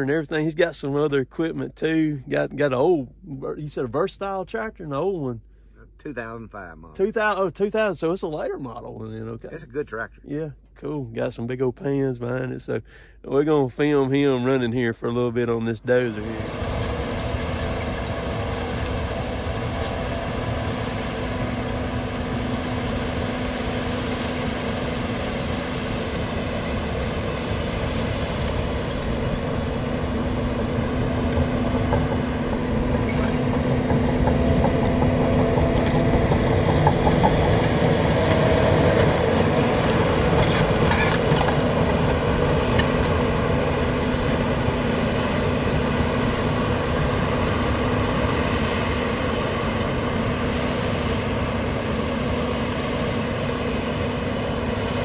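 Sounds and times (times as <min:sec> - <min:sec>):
bulldozer diesel engine working: 0:12.8 - 0:55.0
steel tracks clattering: 0:28.4 - 0:48.9.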